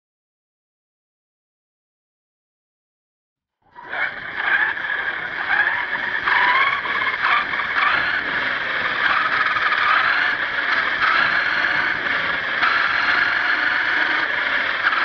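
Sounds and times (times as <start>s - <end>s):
toy truck motor running: 3.7s - 15.0s.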